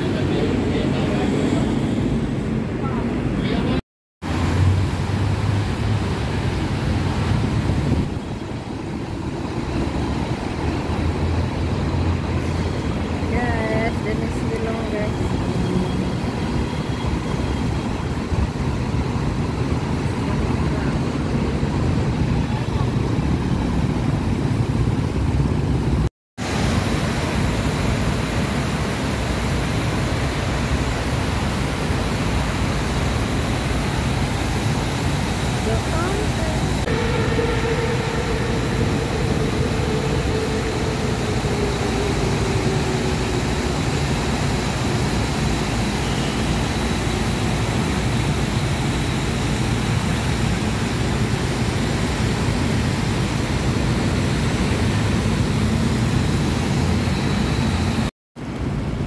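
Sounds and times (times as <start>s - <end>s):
road traffic: 0.0s - 59.0s
fountain water splashing: 4.2s - 15.2s, 26.4s - 37.8s, 38.9s - 57.6s
passing car traffic: 30.6s - 47.8s.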